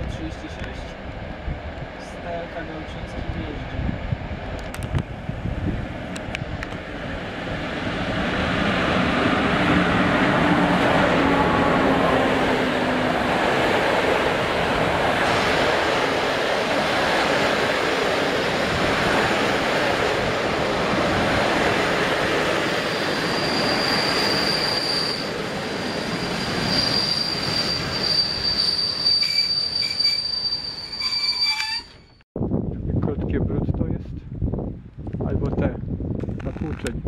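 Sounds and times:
rumble of wheels on rail: 0:00.0 - 0:32.2
high-pitched wheel squeal: 0:22.8 - 0:32.2.

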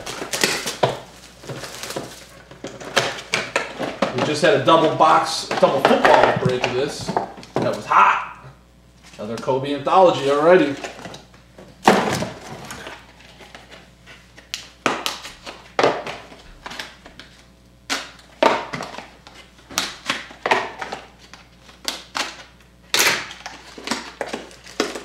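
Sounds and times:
cardboard crackling and tapping: 0:00.0 - 0:07.8.

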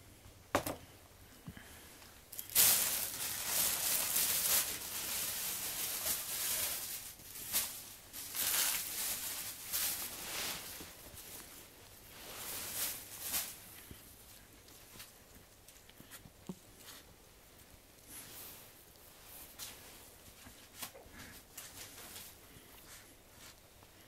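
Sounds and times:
leaves rustling: 0:02.5 - 0:13.8.

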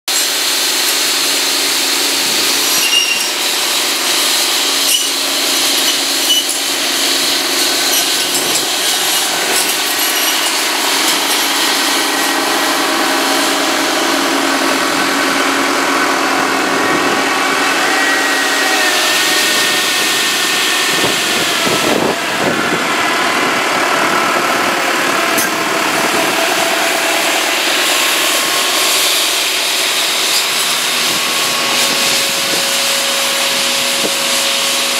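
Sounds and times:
saw blades cutting branches: 0:00.1 - 0:15.3, 0:24.8 - 0:34.9
tractor engine running: 0:00.1 - 0:34.9.

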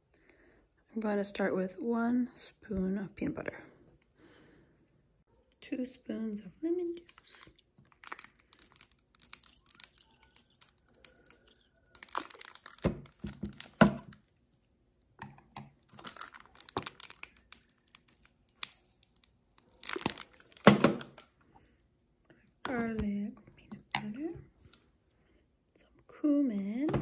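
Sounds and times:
plastic squeeze bottle crinkling: 0:07.0 - 0:14.3, 0:15.9 - 0:21.5.

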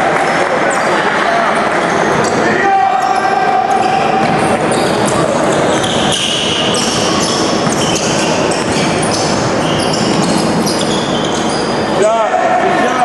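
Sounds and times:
sneakers squeaking: 0:00.0 - 0:12.1
basketball dribbling: 0:03.8 - 0:11.8.

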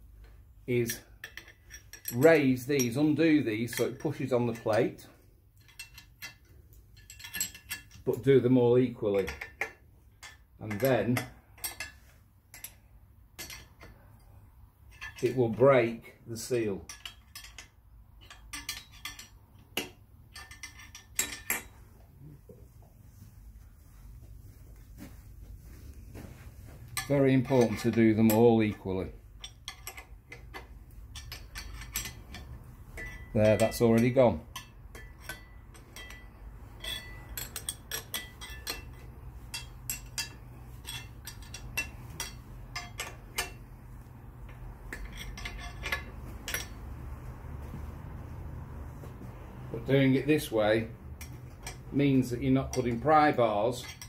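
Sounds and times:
low steady hum: 0:00.0 - 0:54.0
metal tool clinking on bolts: 0:00.7 - 0:08.4, 0:09.1 - 0:14.3, 0:14.9 - 0:15.7, 0:16.6 - 0:21.8, 0:26.9 - 0:43.8, 0:44.4 - 0:47.1, 0:49.8 - 0:54.0.

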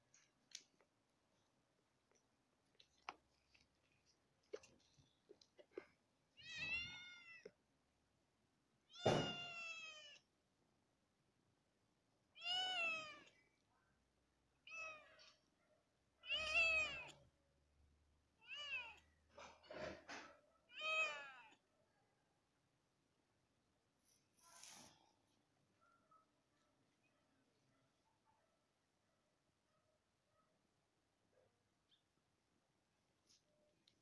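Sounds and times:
kitten meowing: 0:06.4 - 0:07.5, 0:08.9 - 0:10.2, 0:12.4 - 0:13.3, 0:16.2 - 0:17.2, 0:20.7 - 0:21.6.

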